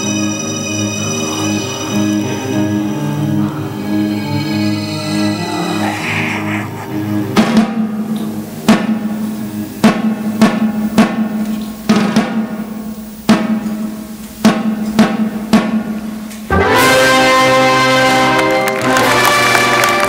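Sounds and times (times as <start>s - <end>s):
sustained musical notes: 1.5s - 8.2s
held low note: 2.6s - 8.5s.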